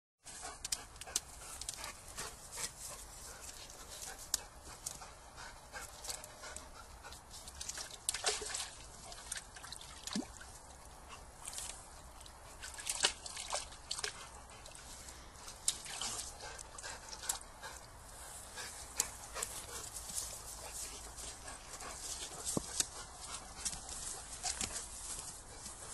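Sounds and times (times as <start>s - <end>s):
dog splashing in water: 7.5s - 14.8s, 15.6s - 17.4s.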